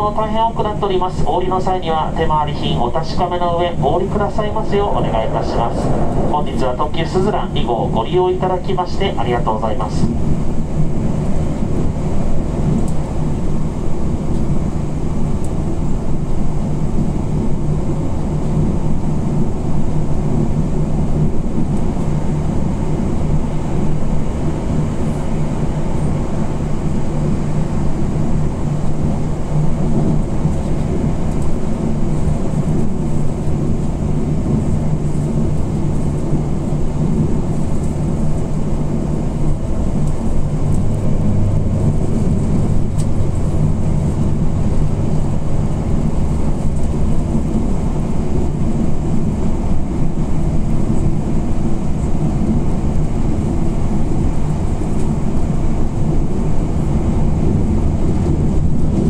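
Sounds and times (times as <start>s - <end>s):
constant low hum: 0.0s - 59.0s
train wheels rumbling on rails: 0.0s - 59.0s.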